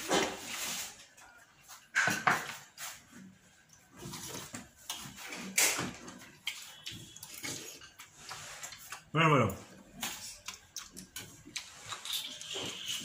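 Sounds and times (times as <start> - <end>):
chewing and mouth sounds: 3.6 - 13.0.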